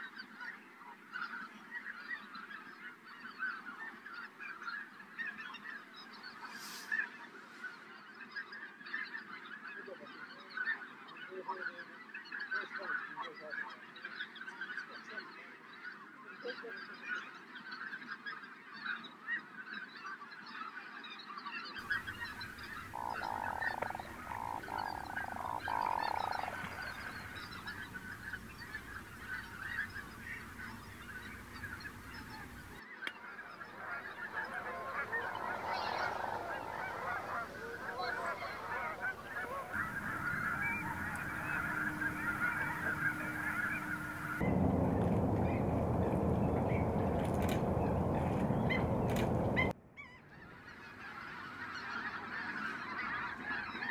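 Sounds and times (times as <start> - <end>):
long steady bird call: 21.8 - 49.7
waterfowl calling: 21.8 - 49.7.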